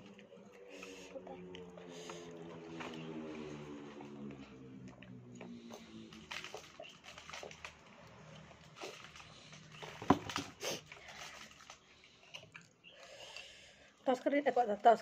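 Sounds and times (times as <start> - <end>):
chewing mouth sounds: 12.1 - 13.4.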